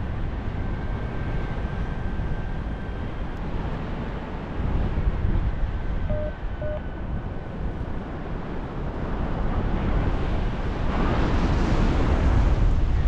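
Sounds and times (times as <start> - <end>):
wind buffeting microphone: 0.0 - 13.0
short beeps from variometer: 6.1 - 6.9.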